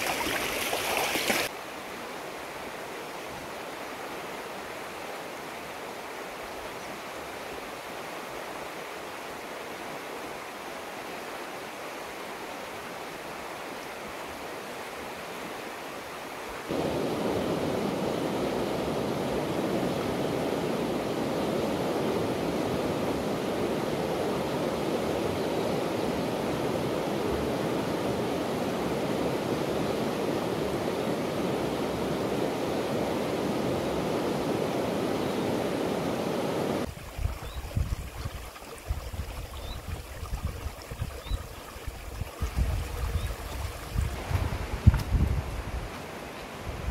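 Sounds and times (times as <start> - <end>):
river rushing over rapids: 0.0 - 37.1
wind buffeting microphone: 36.4 - 45.9.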